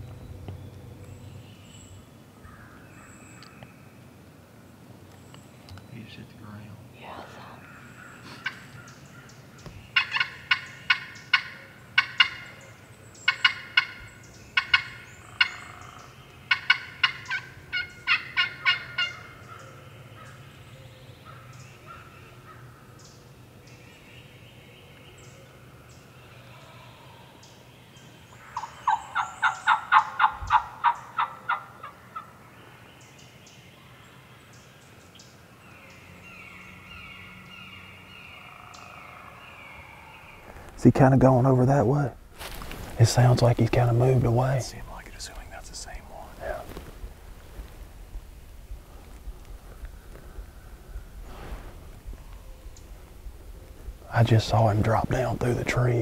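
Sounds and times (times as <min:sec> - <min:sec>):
turkey gobbling: 0:08.2 - 0:09.3, 0:10.0 - 0:12.6, 0:13.2 - 0:14.0, 0:14.6 - 0:19.8, 0:28.4 - 0:32.3.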